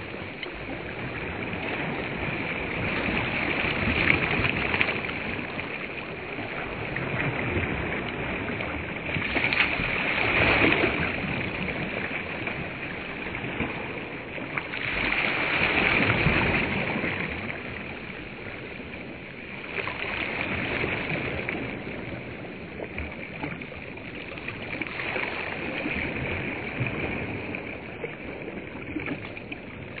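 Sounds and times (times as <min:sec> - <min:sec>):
small waves washing on shore: 0:00.0 - 0:30.0.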